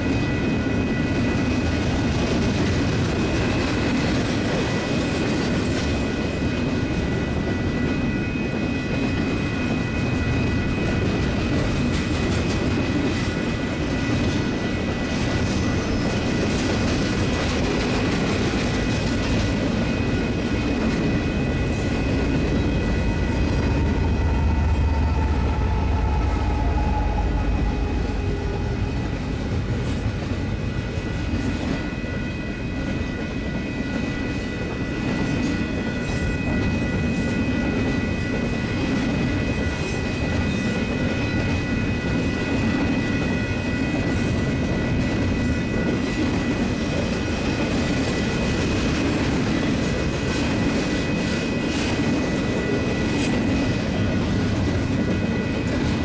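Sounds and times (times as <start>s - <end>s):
crossing warning bell ringing: 0.0s - 56.0s
freight train wheels rumbling: 0.0s - 56.0s
locomotive engine rumble: 21.3s - 30.9s.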